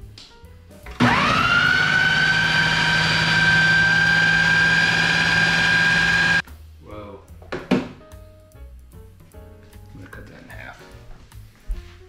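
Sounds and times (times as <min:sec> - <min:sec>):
blender motor whine: 0:00.9 - 0:06.4.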